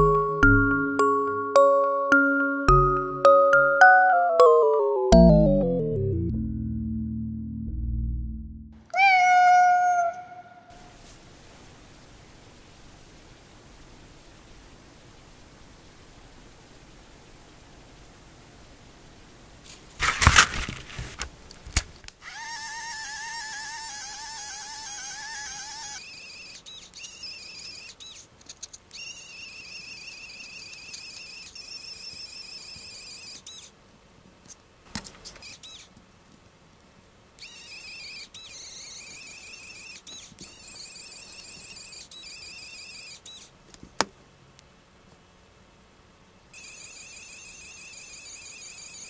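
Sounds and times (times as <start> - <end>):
clatter of handling: 19.7 - 21.9.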